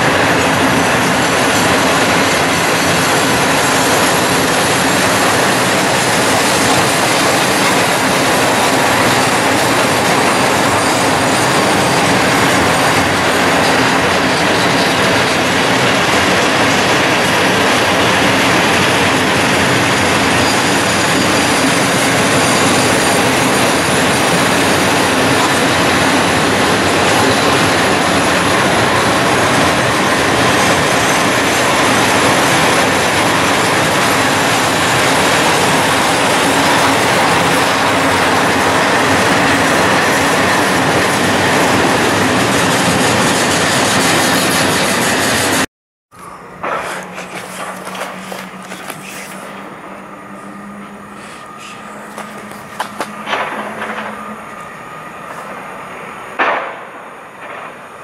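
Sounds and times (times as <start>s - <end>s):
train wheels on rail: 0.0s - 58.0s.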